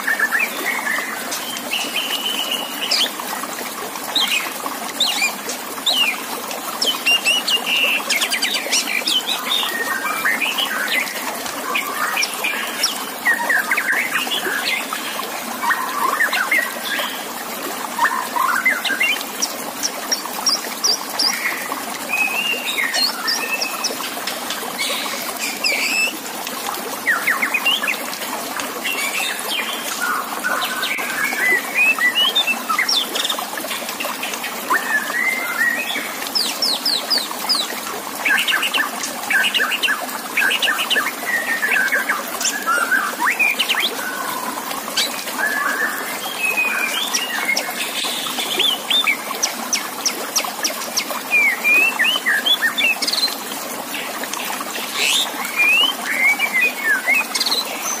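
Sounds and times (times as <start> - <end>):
running water trickling: 0.0 - 58.0
bird singing trills and whistles: 24.9 - 26.1, 51.0 - 53.3, 55.0 - 58.0.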